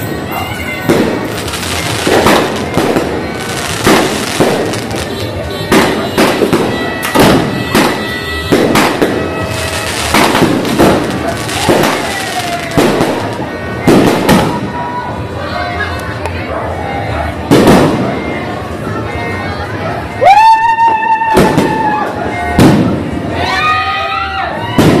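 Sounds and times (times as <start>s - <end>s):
fireworks crackle and hiss: 0.0s - 14.8s
fireworks bangs: 0.0s - 15.3s, 17.4s - 18.6s, 21.2s - 23.5s, 24.6s - 25.0s.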